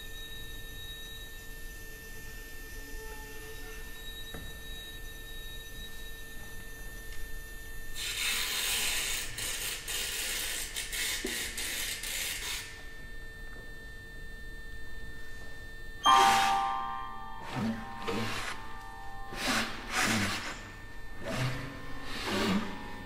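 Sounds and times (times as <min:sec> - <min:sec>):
faint held high tones: 0:16.0 - 0:23.0
loud ringing attack: 0:16.0 - 0:23.0.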